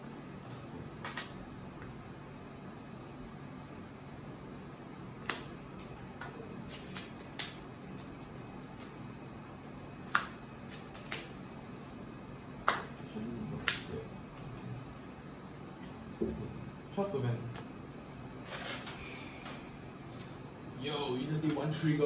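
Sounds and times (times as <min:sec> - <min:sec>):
cards clicking and slapping: 0:00.5 - 0:01.9, 0:05.2 - 0:09.0, 0:10.1 - 0:11.4.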